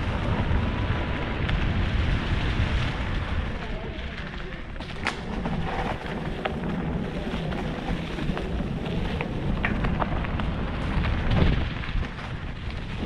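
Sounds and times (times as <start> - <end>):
bike tyres rolling over dirt: 0.0 - 13.0
wind on microphone: 0.0 - 13.0
bike clicks and rattles: 2.6 - 13.0.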